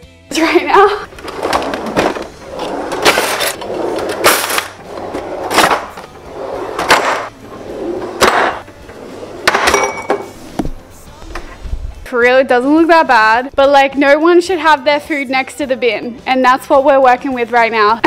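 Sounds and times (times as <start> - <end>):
drawers opening and shutting: 1.0 - 11.6.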